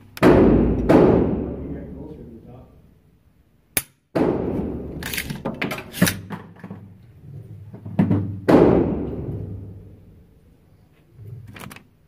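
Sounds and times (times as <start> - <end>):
gunshot echoing indoors: 0.2 - 2.0, 3.8 - 6.3, 8.3 - 10.2.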